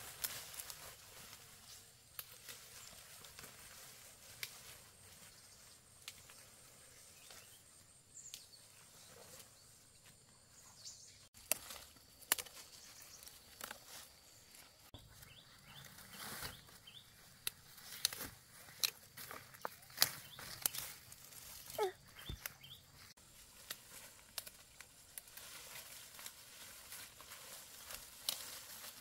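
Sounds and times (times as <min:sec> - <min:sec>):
rustling through ferns: 0:00.0 - 0:29.0
faint bird chirps: 0:12.6 - 0:17.3, 0:21.6 - 0:23.1.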